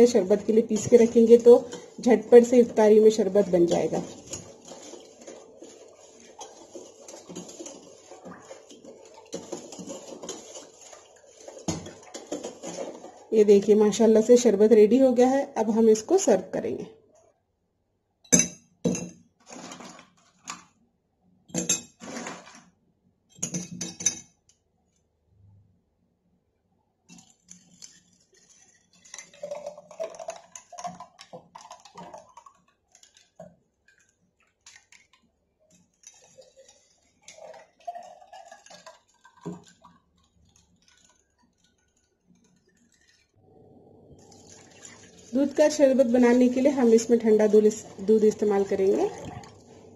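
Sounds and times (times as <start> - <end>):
liquid pouring over ice: 0.0 - 14.0, 19.5 - 20.2, 22.0 - 22.7, 27.1 - 43.4, 44.1 - 49.9.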